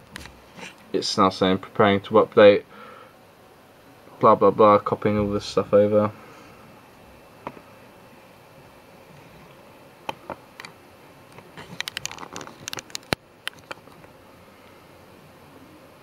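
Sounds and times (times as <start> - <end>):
low steady hiss: 0.0 - 11.6.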